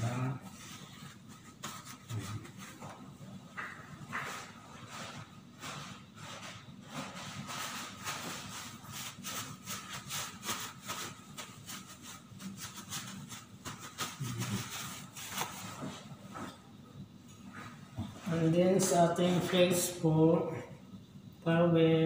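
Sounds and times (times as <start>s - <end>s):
paper tissue rustling and crinkling: 0.5s - 3.0s, 4.1s - 16.2s.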